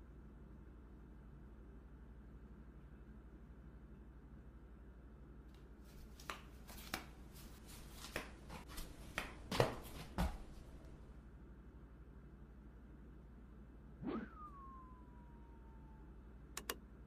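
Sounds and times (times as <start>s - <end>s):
flip-flop footsteps on hard floor: 6.2s - 10.8s.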